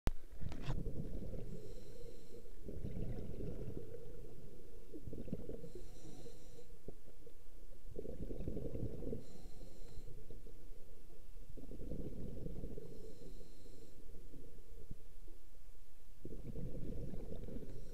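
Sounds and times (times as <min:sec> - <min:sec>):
exhaled bubbles rumbling: 0:00.3 - 0:01.8, 0:02.5 - 0:06.1, 0:06.8 - 0:09.3, 0:10.1 - 0:13.1, 0:16.1 - 0:17.9.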